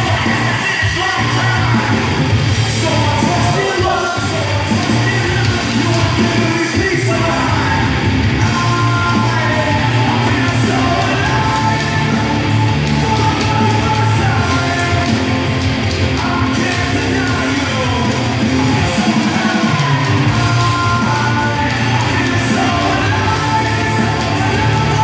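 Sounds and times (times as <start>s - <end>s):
loud rock music with singing: 0.0s - 25.0s.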